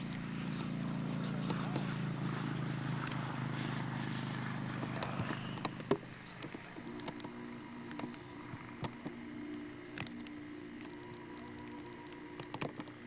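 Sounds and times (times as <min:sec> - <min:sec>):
low motor hum: 0:00.0 - 0:13.0
sharp clicks and knocks: 0:04.8 - 0:09.2, 0:12.4 - 0:13.0.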